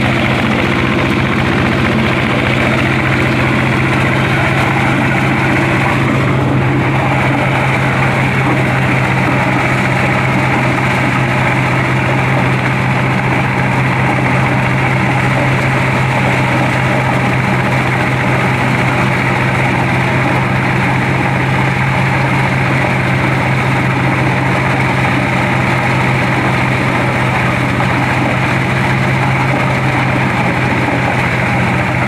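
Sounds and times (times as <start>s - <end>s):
engine humming: 0.0s - 32.0s
rushing threshing noise: 0.0s - 32.0s.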